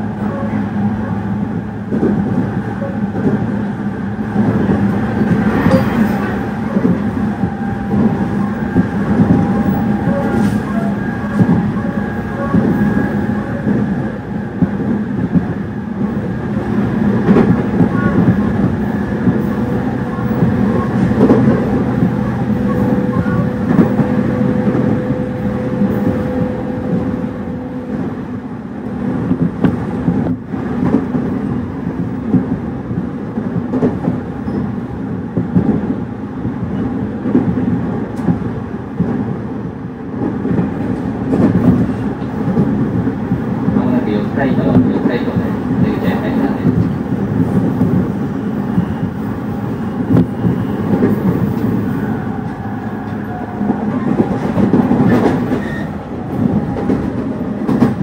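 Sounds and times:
rumbling rail noise: 0:00.0 - 0:58.0
train wheel clatter: 0:04.3 - 0:28.1, 0:40.1 - 0:58.0.

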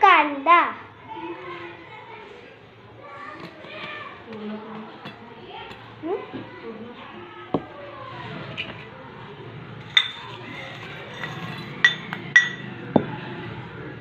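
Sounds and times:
spoon clinking on steel bowl: 0:09.8 - 0:12.7.

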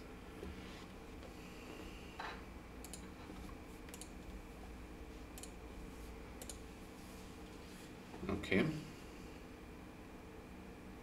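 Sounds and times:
low steady hum: 0:00.0 - 0:11.0
computer mouse clicks: 0:02.8 - 0:03.1, 0:03.9 - 0:04.2, 0:05.4 - 0:05.6, 0:06.4 - 0:06.6.

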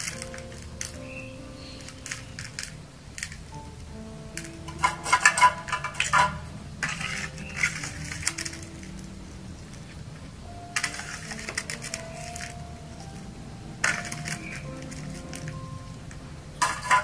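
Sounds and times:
scoop rattling granules: 0:10.8 - 0:12.6.

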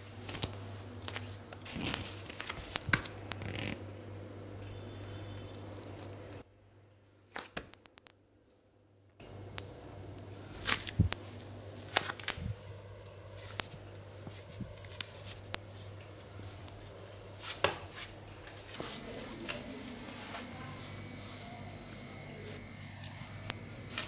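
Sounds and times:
low steady hum: 0:08.3 - 0:24.0.

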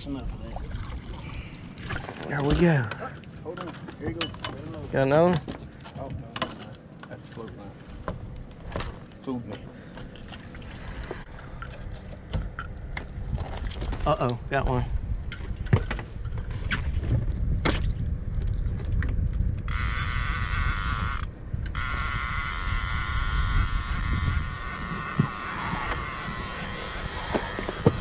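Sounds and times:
fishing reel drag buzzing: 0:19.7 - 0:28.0.

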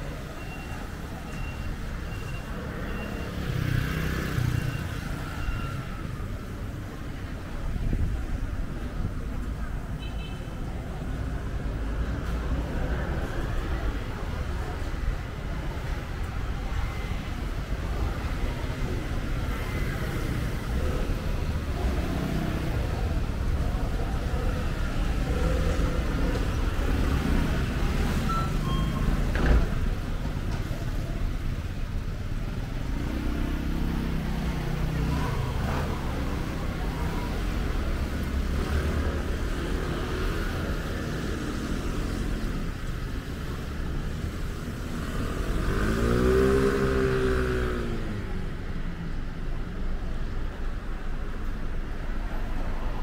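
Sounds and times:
rumble of passing traffic: 0:00.0 - 0:53.0
engine passing close by: 0:44.8 - 0:48.2.

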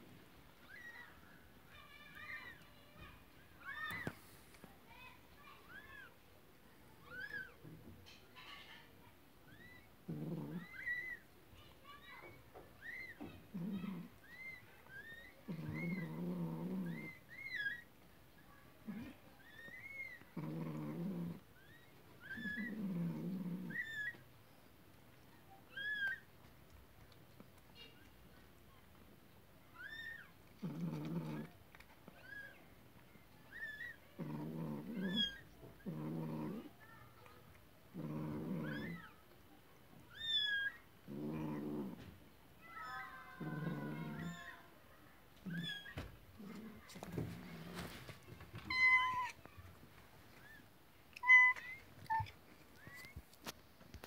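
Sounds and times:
cat making low drawn-out calls: 0:42.8 - 0:44.6
kitten squeaking: 0:48.6 - 0:49.4, 0:51.2 - 0:53.1.

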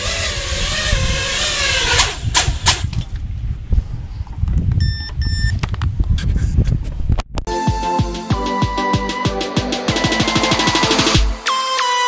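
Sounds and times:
drone motors whining: 0:00.0 - 0:02.4
short electronic beeps: 0:04.8 - 0:05.6.

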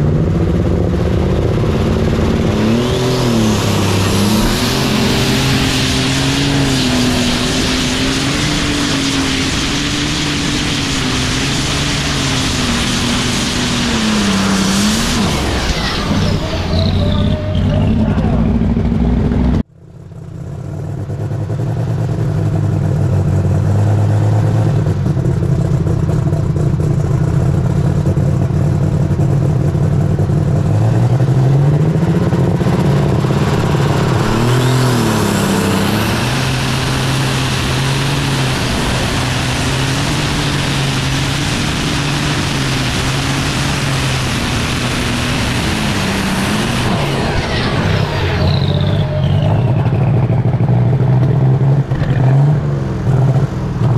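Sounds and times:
high whine: 0:00.0 - 0:19.7, 0:29.6 - 0:52.4
tractor diesel engine under load: 0:00.0 - 0:53.9.

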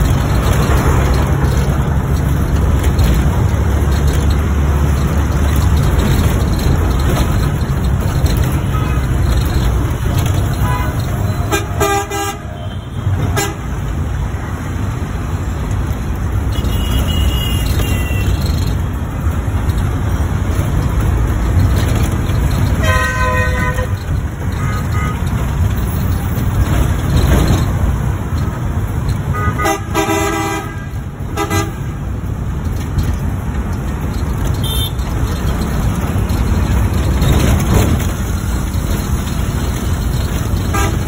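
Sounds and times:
traffic rumble of engines and tyres: 0:00.0 - 0:41.0
vehicle horns honking: 0:10.6 - 0:13.8, 0:16.5 - 0:18.4, 0:22.8 - 0:24.0, 0:29.3 - 0:32.0, 0:34.6 - 0:35.1, 0:40.6 - 0:41.0.

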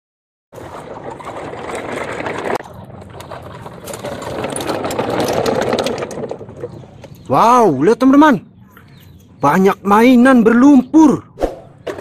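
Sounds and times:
plastic toy trucks rolling on concrete: 0:00.6 - 0:09.3, 0:11.7 - 0:12.0.

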